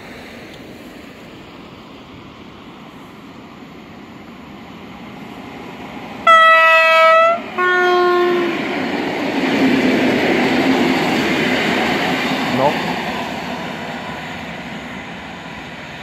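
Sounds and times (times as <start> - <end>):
train rumble: 0.0 - 16.0
two-tone train horn: 6.2 - 8.6.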